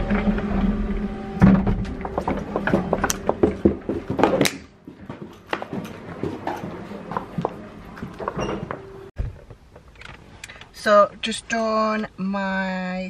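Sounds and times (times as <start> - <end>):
footsteps: 0.0 - 9.4.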